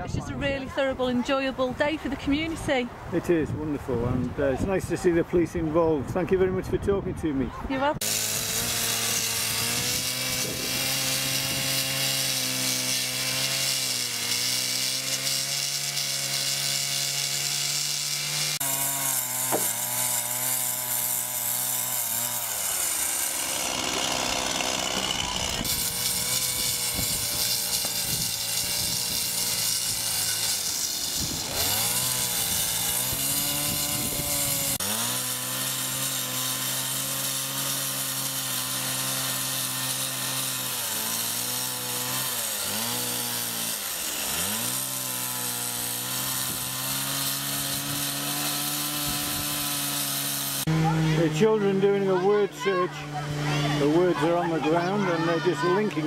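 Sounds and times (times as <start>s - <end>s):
chainsaw cutting wood: 7.8s - 56.0s.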